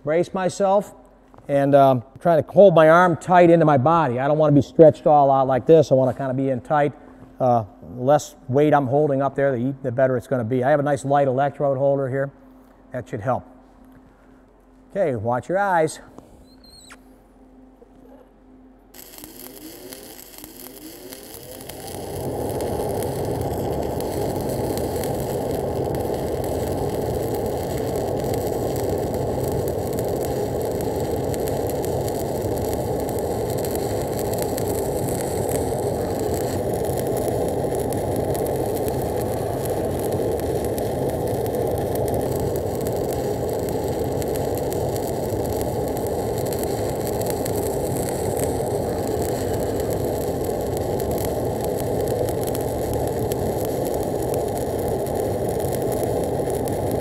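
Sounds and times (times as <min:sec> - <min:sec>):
welding arc crackling hiss: 0:16.2 - 0:17.0, 0:18.9 - 0:57.0.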